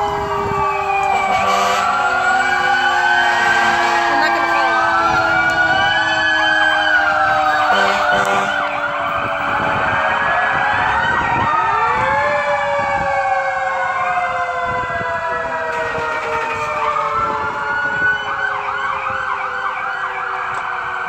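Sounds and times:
emergency vehicle sirens: 0.0 - 21.0
low horn blasts: 1.1 - 4.7, 7.7 - 8.8.

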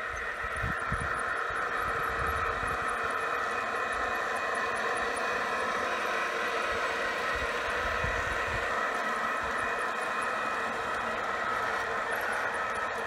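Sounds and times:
model train mechanical hum: 0.0 - 13.0
wind rumble on microphone: 0.5 - 1.2.

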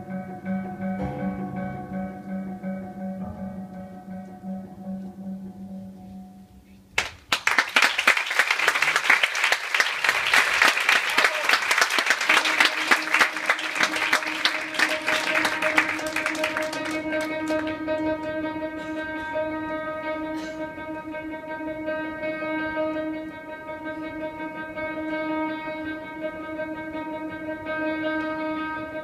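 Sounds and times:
sustained music notes: 0.0 - 7.0, 11.9 - 29.0
audience applauding: 7.0 - 17.9.

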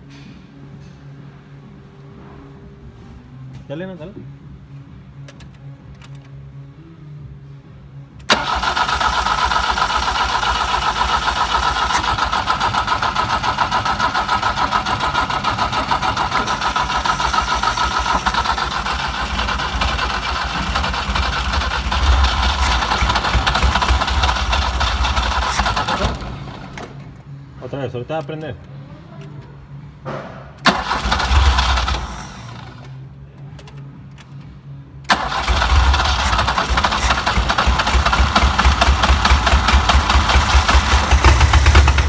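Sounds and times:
starter motor cranking engine: 8.3 - 27.0, 30.6 - 32.9, 35.1 - 42.0.

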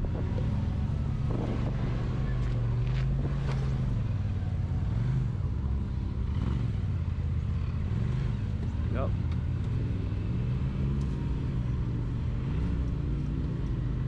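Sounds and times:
engine running at low revs: 0.0 - 14.0.

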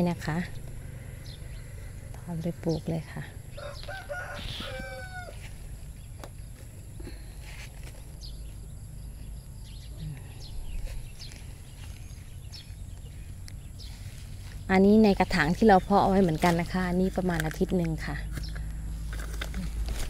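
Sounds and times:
rooster crowing: 3.5 - 5.6.

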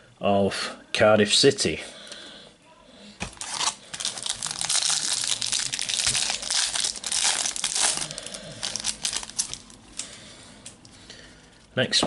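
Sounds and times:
foil wrapper crinkling and tearing: 3.2 - 10.8.

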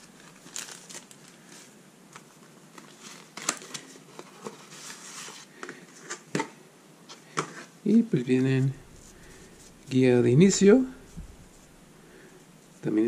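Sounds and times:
paper rustling and sliding: 0.0 - 6.3, 8.4 - 12.2.

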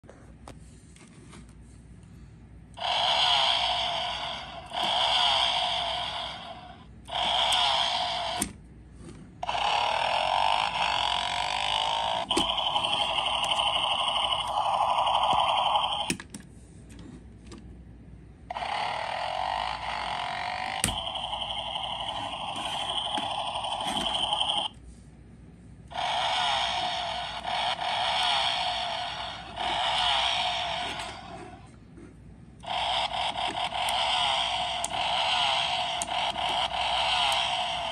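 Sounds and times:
toy engine revving sound effect: 2.8 - 8.6, 9.4 - 16.2, 18.5 - 24.8, 25.9 - 31.7, 32.6 - 37.9.

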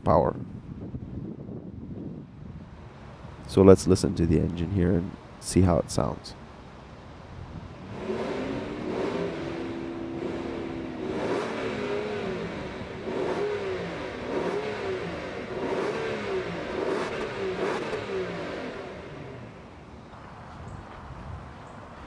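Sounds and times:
car engine revving: 7.8 - 19.8.

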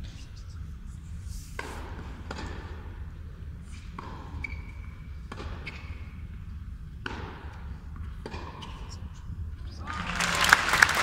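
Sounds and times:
ball bouncing on hard court: 1.6 - 2.8, 3.8 - 6.2, 7.0 - 8.8
racquets striking tennis ball: 3.8 - 6.1, 7.0 - 8.8.

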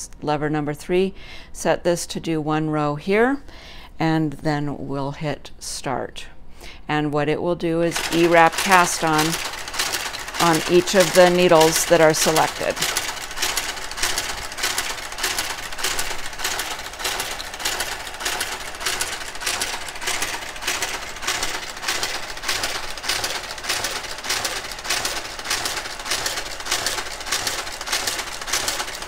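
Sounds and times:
knitting machine carriage clicking: 7.9 - 29.0.

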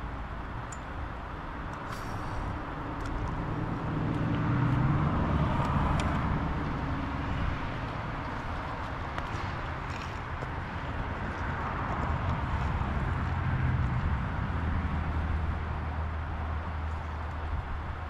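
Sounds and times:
steady outdoor hiss: 0.0 - 18.0
vehicle passing by: 3.3 - 17.2.

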